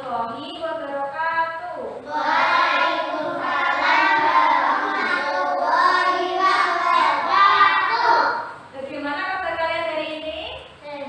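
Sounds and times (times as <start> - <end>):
children singing in unison: 2.0 - 8.4.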